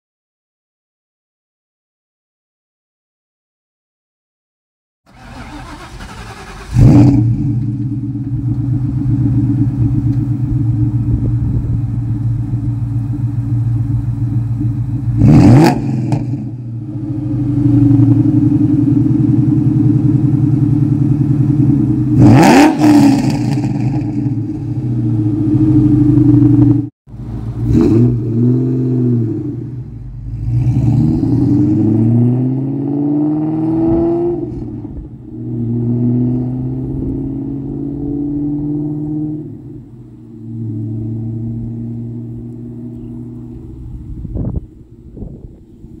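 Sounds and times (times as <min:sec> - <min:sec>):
car engine idling: 0:05.1 - 0:15.3, 0:16.4 - 0:22.2, 0:24.1 - 0:28.2, 0:39.5 - 0:46.0
car accelerating away: 0:05.1 - 0:46.0
car engine revving: 0:05.1 - 0:46.0.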